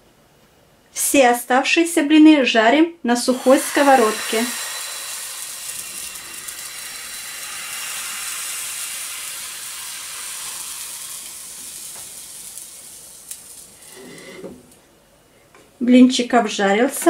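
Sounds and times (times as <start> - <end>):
batter sizzling in frying pan: 3.2 - 14.8.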